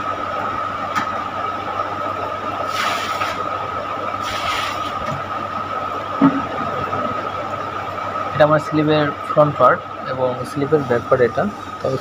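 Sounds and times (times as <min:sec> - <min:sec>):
high whine: 0:00.0 - 0:12.0
hiss: 0:02.7 - 0:03.4, 0:04.2 - 0:05.0.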